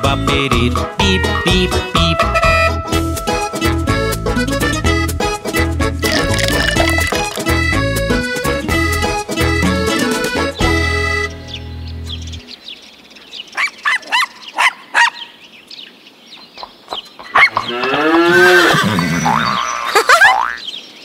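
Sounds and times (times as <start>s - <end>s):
accordion chord: 1.7s - 6.2s, 7.5s - 12.4s
cow mooing: 17.6s - 19.6s.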